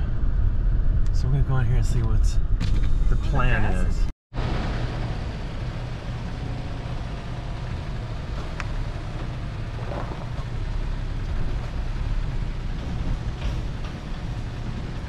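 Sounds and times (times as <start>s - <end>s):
pickup truck driving slowly: 4.4s - 15.0s.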